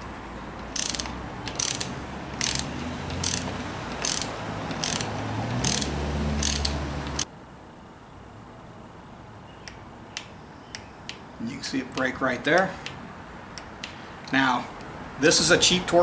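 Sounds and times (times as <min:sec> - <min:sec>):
ratchet pawl rasping: 0:00.6 - 0:07.3.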